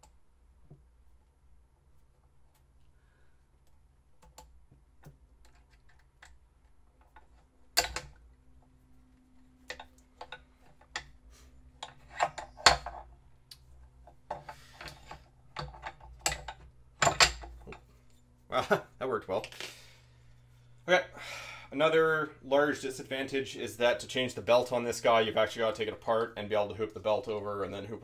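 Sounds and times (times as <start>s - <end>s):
metal parts clicking and knocking: 5.0s - 8.4s, 9.6s - 18.2s.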